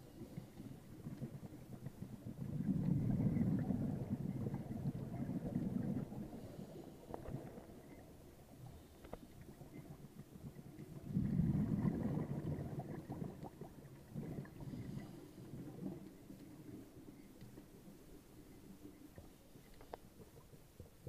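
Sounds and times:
underwater exhaled bubbles: 0:00.0 - 0:21.0
small clicks: 0:19.6 - 0:20.6.

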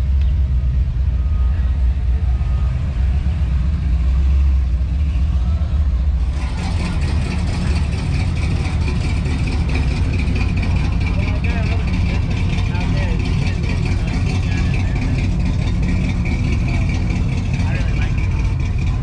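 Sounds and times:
car engine rumbling: 0:00.0 - 0:19.0.

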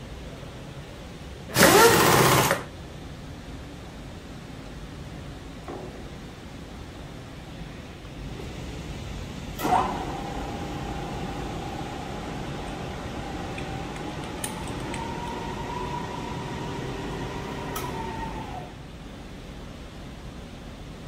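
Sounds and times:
milling machine spindle whine: 0:09.7 - 0:18.7.

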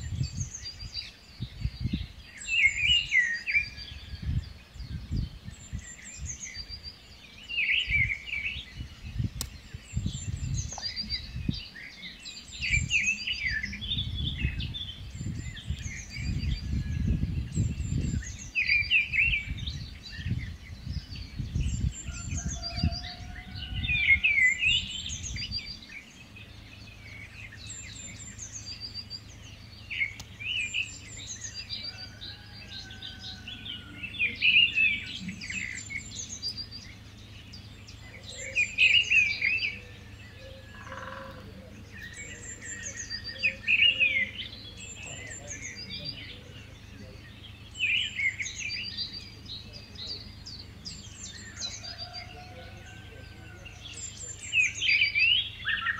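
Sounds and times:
small birds chirping and singing: 0:00.0 - 0:55.9.

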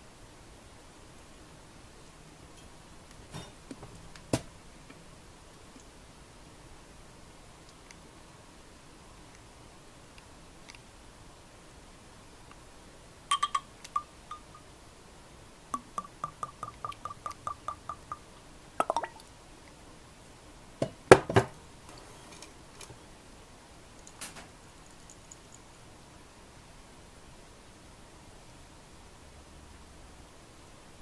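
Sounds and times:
glass clinks: 0:13.3 - 0:14.7
liquid glugging from bottle: 0:18.8 - 0:19.3.

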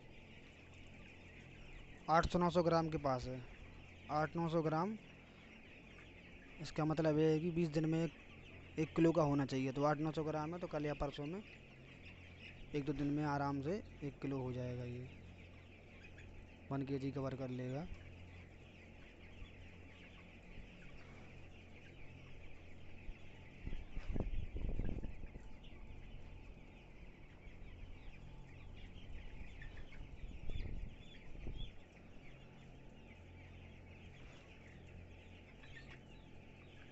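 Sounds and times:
chickens cheeping and clucking: 0:00.0 - 0:36.9.

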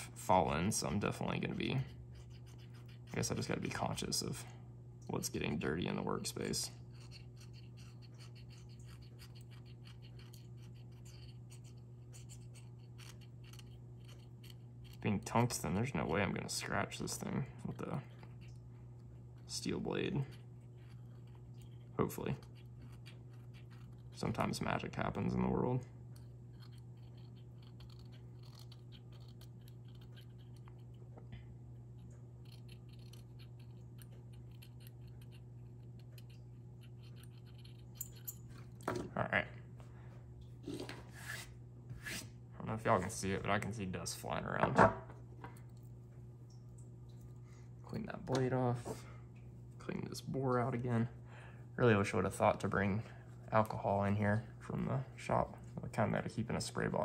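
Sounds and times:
steady low hum: 0:00.0 - 0:57.0
knife scraping metal: 0:40.7 - 0:42.3.

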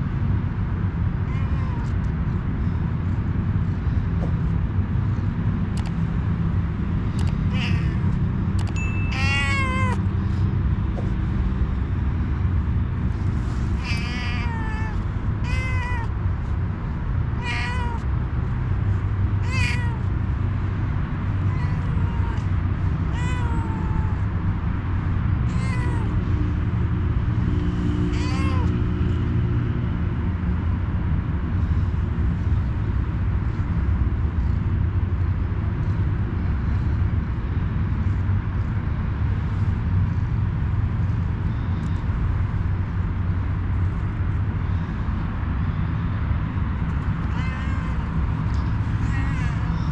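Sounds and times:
steady low rumble: 0:00.0 - 0:49.9
cat meowing: 0:01.2 - 0:02.4, 0:07.0 - 0:10.4, 0:13.1 - 0:20.6, 0:21.2 - 0:24.3, 0:25.4 - 0:26.3, 0:27.7 - 0:29.2, 0:46.8 - 0:49.9.

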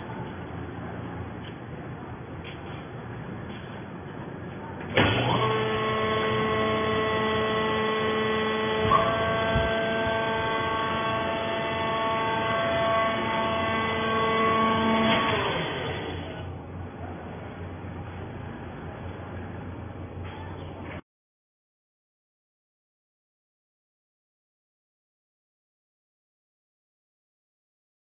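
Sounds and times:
hydraulic pump whining hum: 0:00.0 - 0:21.0.

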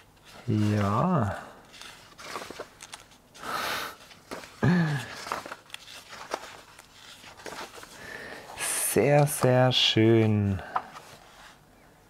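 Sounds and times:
paper rustling: 0:00.0 - 0:11.6.

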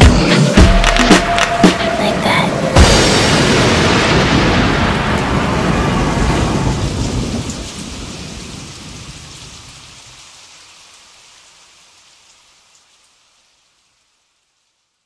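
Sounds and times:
hissing rushing boom tail: 0:00.1 - 0:07.5.

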